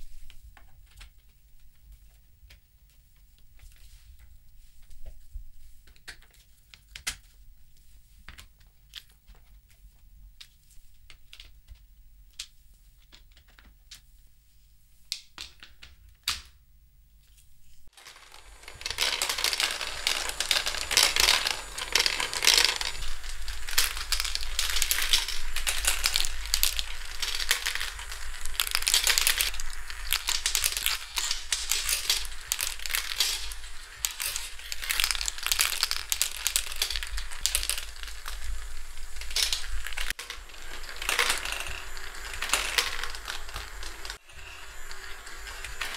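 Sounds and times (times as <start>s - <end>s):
marbles clattering down plastic tracks: 17.9s - 45.9s.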